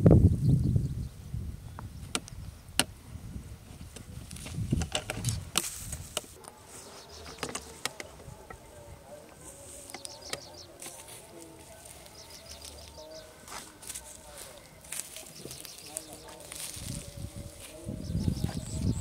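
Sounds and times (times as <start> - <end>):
sharp crackles and rustles: 3.6 - 8.7.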